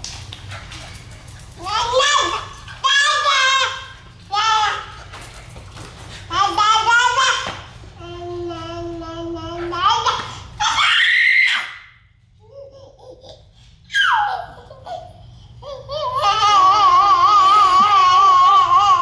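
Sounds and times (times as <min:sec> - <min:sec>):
toddlers babbling and laughing: 0:01.6 - 0:05.1, 0:06.3 - 0:10.9, 0:12.4 - 0:19.0.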